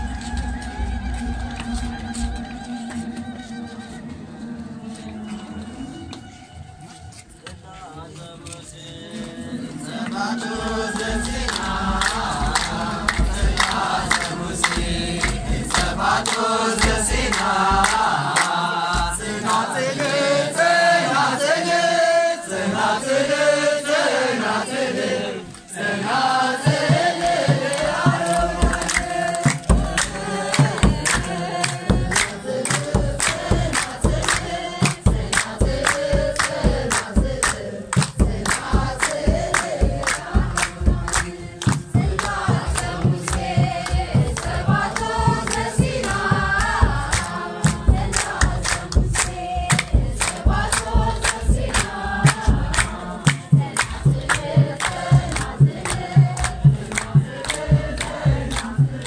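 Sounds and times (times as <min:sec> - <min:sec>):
crowd singing a chanted hymn: 0:00.0 - 0:07.2, 0:08.1 - 0:59.0
hand clapping: 0:10.0 - 0:20.2, 0:26.6 - 0:59.0
drum keeping a steady beat: 0:10.3 - 0:19.8, 0:26.5 - 0:59.0.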